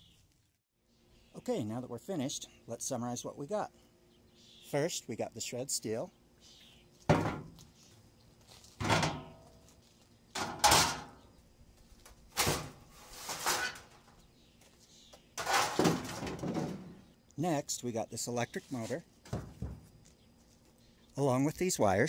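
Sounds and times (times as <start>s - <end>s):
sheet metal clanking in truck bed: 8.8s - 9.4s, 10.4s - 11.2s.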